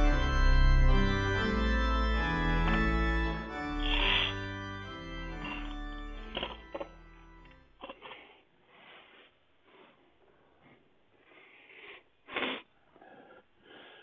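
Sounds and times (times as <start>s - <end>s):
person sniffing: 3.8s - 4.5s, 7.8s - 14.0s.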